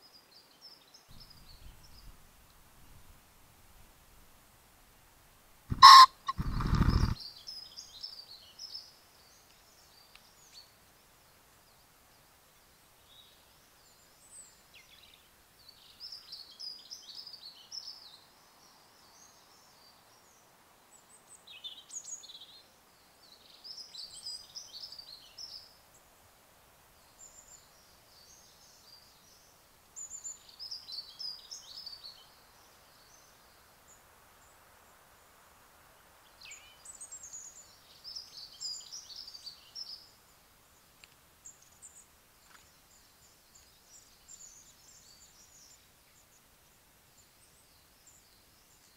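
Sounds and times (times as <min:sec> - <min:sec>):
pheasant crowing: 0:05.7 - 0:07.2
wing whirring: 0:05.7 - 0:07.2
songbirds singing: 0:05.7 - 0:26.1, 0:26.9 - 0:35.2, 0:36.0 - 0:48.9.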